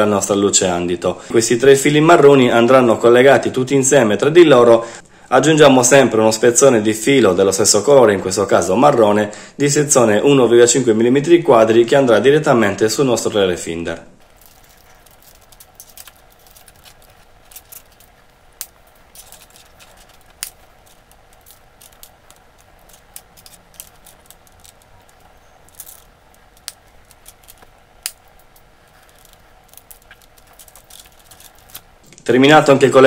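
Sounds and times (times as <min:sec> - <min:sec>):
faint rustling of wires: 0:14.0 - 0:33.0.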